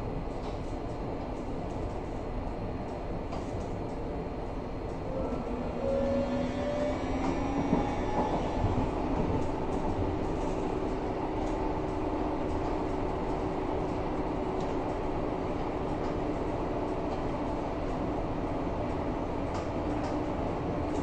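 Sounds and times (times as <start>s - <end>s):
wheels rumbling on rail: 0.0s - 21.0s
train motor whine: 5.1s - 11.0s.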